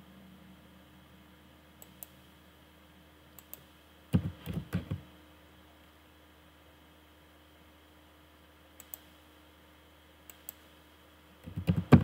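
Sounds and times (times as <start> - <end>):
computer mouse clicks: 1.8 - 2.2, 3.4 - 5.0, 8.8 - 9.1, 10.2 - 10.7, 11.4 - 12.0
keyboard keystrokes: 4.2 - 5.0, 11.4 - 12.0.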